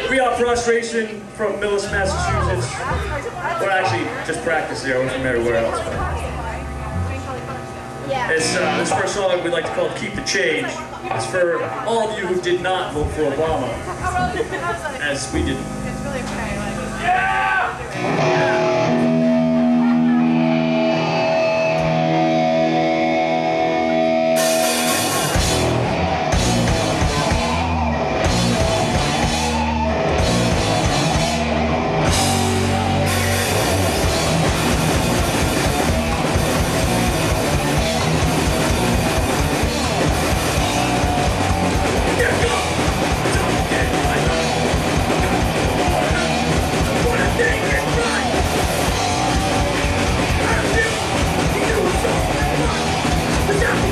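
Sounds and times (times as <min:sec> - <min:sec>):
electric guitar sustained notes: 0:00.0 - 0:53.9
heavy metal band playing: 0:00.0 - 0:53.9
drums crashing: 0:12.9 - 0:14.6, 0:18.0 - 0:53.9.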